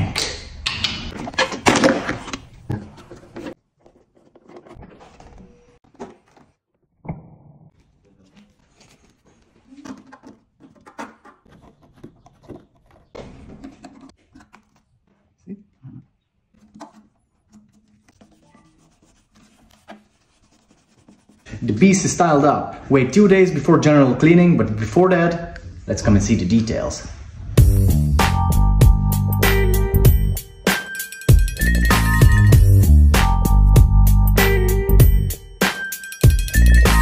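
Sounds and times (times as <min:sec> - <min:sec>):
rubbing: 0:16.2 - 0:21.5.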